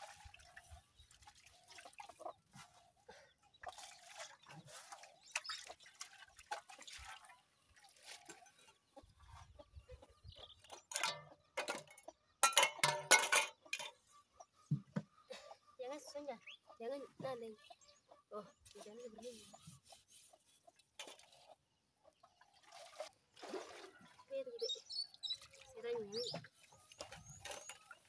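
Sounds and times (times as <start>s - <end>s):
water splashing and dripping: 0.0s - 2.8s, 3.6s - 8.8s, 22.4s - 28.0s
dishes knocking: 10.9s - 13.9s.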